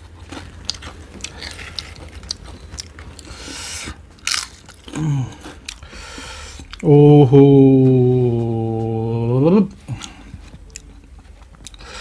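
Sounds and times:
lip smacks and mouth clicks: 9.8s - 11.9s.

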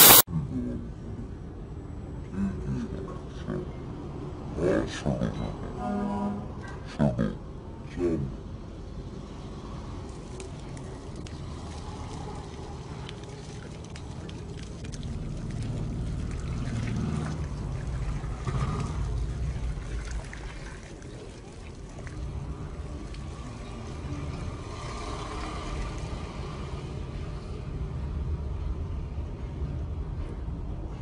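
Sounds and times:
water pouring into a puddle: 10.1s - 26.8s.

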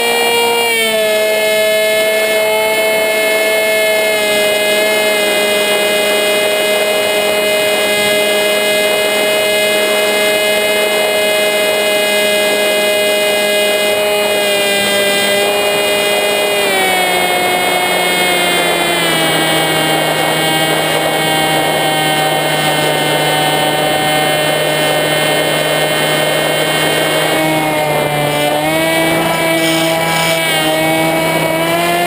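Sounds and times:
model plane motor whining: 0.0s - 32.0s
rush of air: 27.1s - 31.6s.

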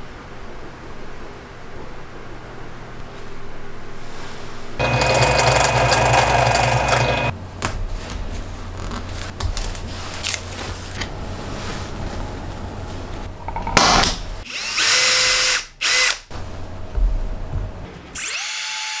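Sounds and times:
power tool whine: 4.8s - 7.3s.

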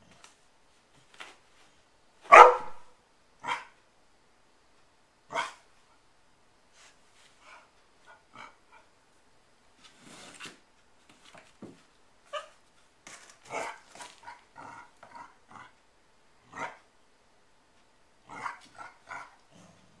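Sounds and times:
dogs barking: 2.3s - 2.8s, 3.4s - 3.8s
dogs growling: 13.5s - 15.8s, 18.2s - 20.0s.

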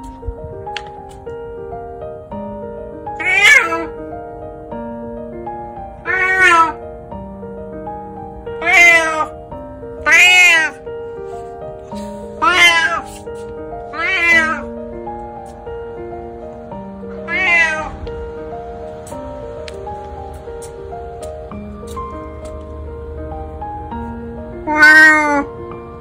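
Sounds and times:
soft background music: 0.0s - 26.0s
cat meowing: 3.2s - 4.0s, 6.0s - 6.8s, 8.6s - 9.4s, 10.0s - 10.9s, 12.3s - 13.3s, 13.9s - 14.7s, 17.2s - 18.0s, 24.6s - 25.5s.

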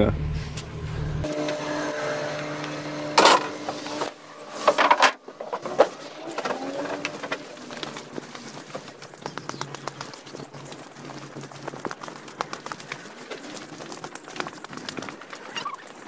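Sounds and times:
steady hum: 0.0s - 9.1s
footsteps on wooden boards: 3.1s - 16.0s.

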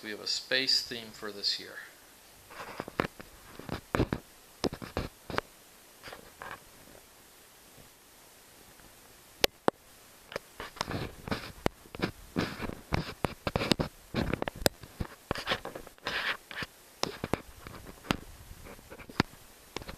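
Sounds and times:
rustling and scraping handling noise: 2.4s - 7.1s, 10.3s - 19.9s.

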